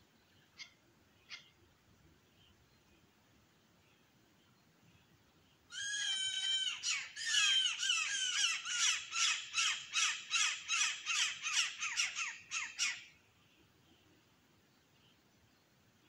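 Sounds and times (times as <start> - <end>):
bird calling loudly: 5.7 - 13.1.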